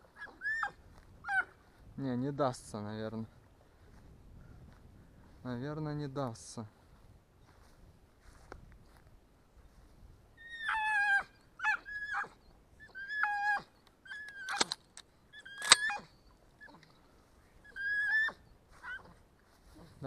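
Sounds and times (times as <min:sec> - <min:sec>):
dog yelping: 0:00.0 - 0:01.6, 0:10.4 - 0:14.8, 0:15.4 - 0:16.8, 0:17.7 - 0:19.2.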